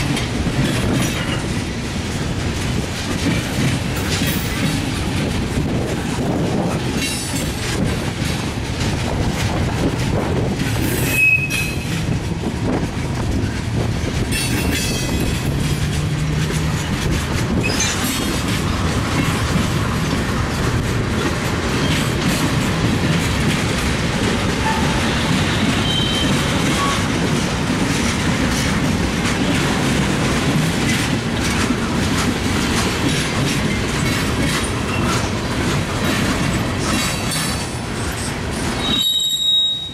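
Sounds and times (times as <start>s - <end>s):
train wheels clattering on rail: 0.0s - 39.9s
wheel squeals: 10.8s - 12.0s, 17.6s - 18.1s, 38.8s - 39.9s.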